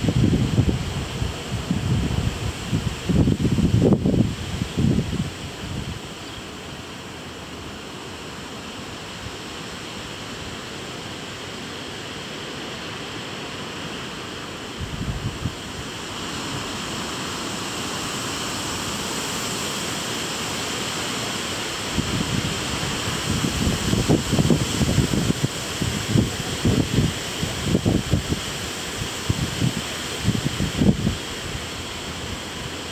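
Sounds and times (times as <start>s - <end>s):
wind gusts buffeting microphone: 0.0s - 6.2s, 14.7s - 16.9s, 21.9s - 32.9s
storm wind rushing through trees: 0.0s - 32.9s.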